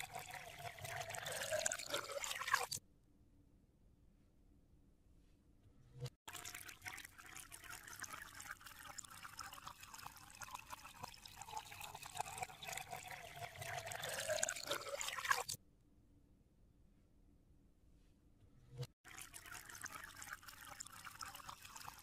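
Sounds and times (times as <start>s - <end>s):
water pouring and trickling: 0.0s - 2.8s, 6.0s - 15.6s, 18.8s - 22.0s.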